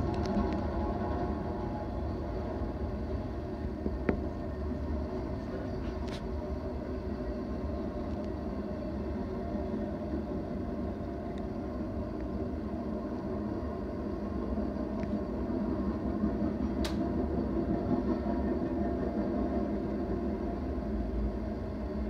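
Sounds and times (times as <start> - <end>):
freight train wheels rumbling: 0.0 - 22.0
sharp click: 16.8 - 17.0.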